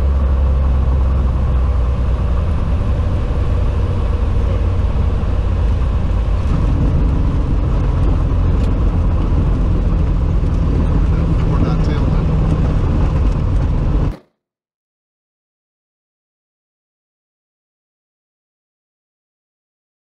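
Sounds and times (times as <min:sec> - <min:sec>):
airplane engine and propeller drone: 0:00.0 - 0:14.2.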